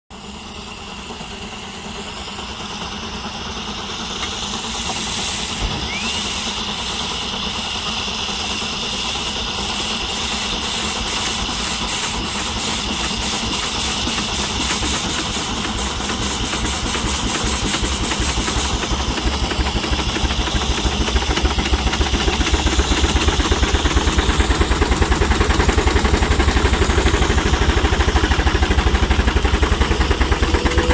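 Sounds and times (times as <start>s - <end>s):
steam engine exhaust beats: 0.1s - 30.9s
steam hiss: 0.2s - 30.9s.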